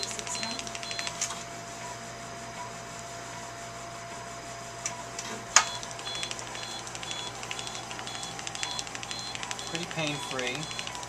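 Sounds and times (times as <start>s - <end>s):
short high beeps: 0.0s - 1.2s, 5.6s - 11.0s
machine humming with tones: 0.0s - 11.0s.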